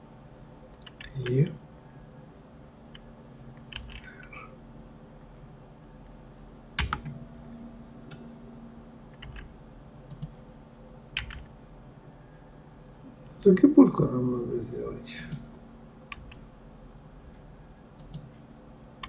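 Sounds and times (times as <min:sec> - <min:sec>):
faint steady hum: 0:00.0 - 0:19.0
keyboard and mouse clicks: 0:00.8 - 0:01.2, 0:02.9 - 0:04.2, 0:06.8 - 0:07.2, 0:09.1 - 0:09.5, 0:10.1 - 0:10.4, 0:11.2 - 0:11.5, 0:16.1 - 0:16.4, 0:18.0 - 0:18.3.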